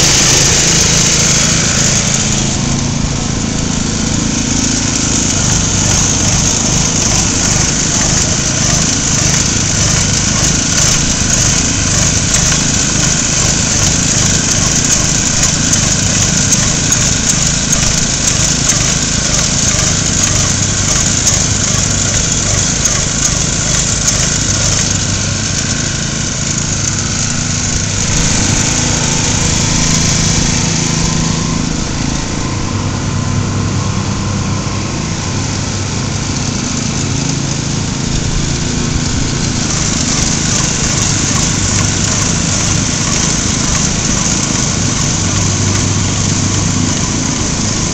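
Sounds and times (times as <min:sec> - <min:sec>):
paint spray hiss: 0:00.0 - 0:32.4
small gas engine running: 0:00.0 - 0:47.9.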